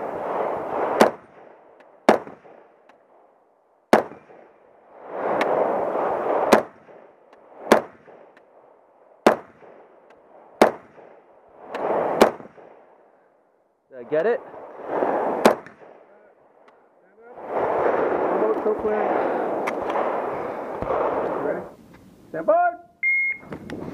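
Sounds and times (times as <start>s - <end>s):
rifle shots: 0.0s - 3.3s, 3.9s - 8.6s, 9.2s - 13.0s, 14.5s - 16.2s, 17.5s - 21.6s
rushing noise: 14.0s - 15.8s, 17.2s - 21.6s.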